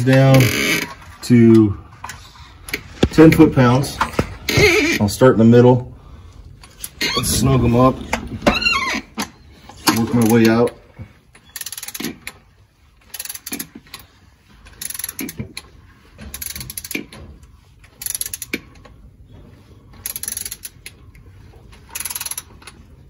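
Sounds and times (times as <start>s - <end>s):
socket ratchet clicking: 22.0s - 22.5s.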